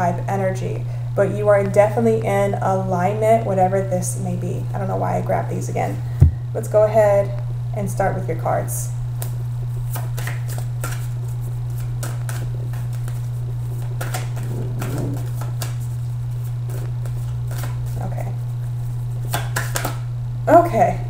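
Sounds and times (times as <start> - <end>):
low electrical hum: 0.0 - 21.0
cards being shuffled: 9.2 - 18.1, 19.2 - 20.0.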